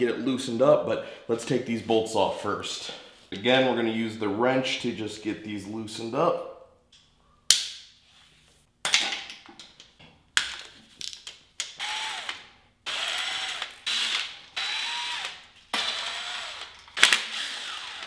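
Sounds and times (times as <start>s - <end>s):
cordless impact driver whirring: 11.8s - 18.0s.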